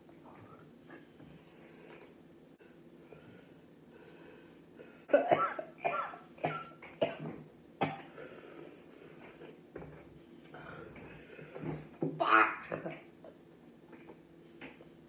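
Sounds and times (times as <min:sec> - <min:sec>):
man coughing hard: 0:05.1 - 0:08.1.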